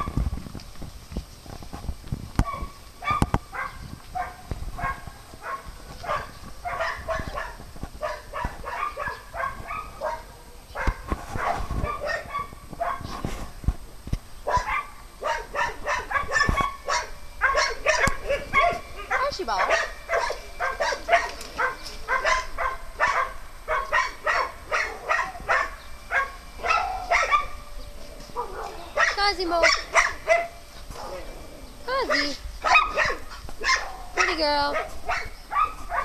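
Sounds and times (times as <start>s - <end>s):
small dogs barking and yipping: 0.0s - 0.3s, 2.4s - 13.6s, 14.4s - 36.0s.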